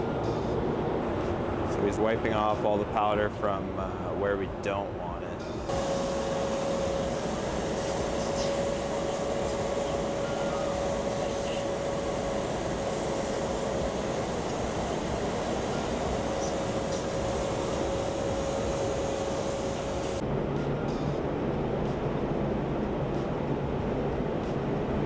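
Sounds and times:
thin whine: 0.0s - 21.4s
air rushing: 5.7s - 20.2s.

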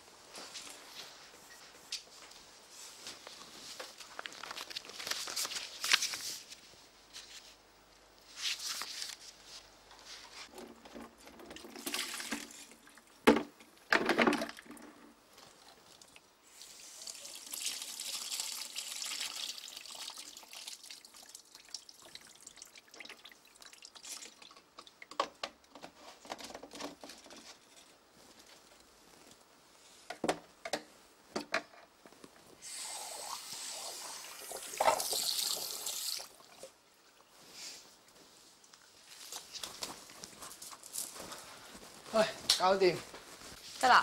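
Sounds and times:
tap water running into basin: 11.4s - 13.2s, 16.0s - 25.2s, 32.7s - 36.8s.

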